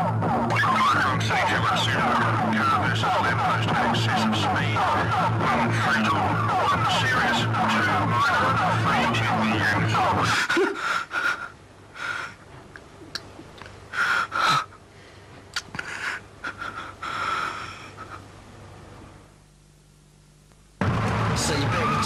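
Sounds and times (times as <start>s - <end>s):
man wheezing and gasping: 10.2s - 12.5s, 13.9s - 18.3s.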